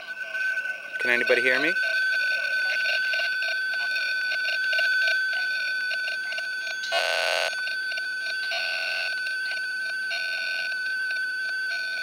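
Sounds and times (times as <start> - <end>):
high-pitched electronic whine: 0.0 - 12.0.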